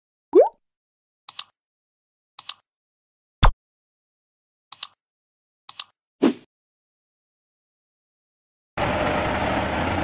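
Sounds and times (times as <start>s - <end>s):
computer mouse clicks: 1.3s - 1.5s, 2.4s - 2.6s, 4.7s - 5.0s, 5.7s - 6.0s.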